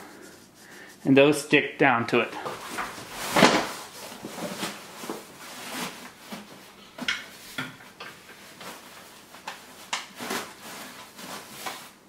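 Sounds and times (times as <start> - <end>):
fabric rustling: 2.5 - 7.6, 8.3 - 12.0.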